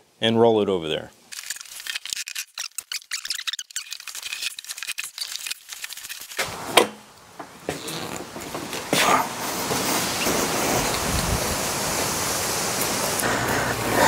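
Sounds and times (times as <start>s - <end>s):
clicks and rattles of handling: 1.3s - 6.5s.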